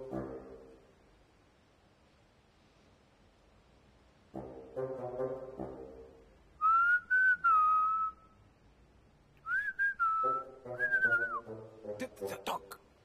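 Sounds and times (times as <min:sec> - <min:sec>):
man whistling: 0:06.6 - 0:08.4, 0:09.4 - 0:11.5.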